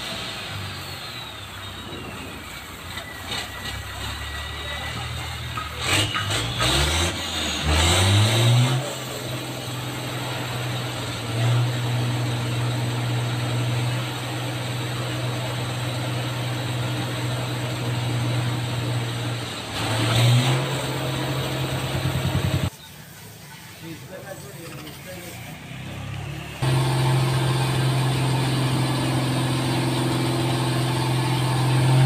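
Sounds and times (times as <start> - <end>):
engine revving: 0.0 - 22.7, 25.3 - 32.0
high-pressure water jet hiss: 22.7 - 25.6.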